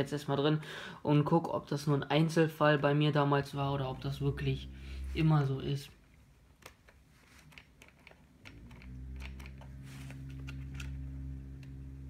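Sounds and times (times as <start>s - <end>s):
low steady hum: 0.0s - 12.0s
fingers clicking and tapping plastic parts: 6.5s - 11.8s.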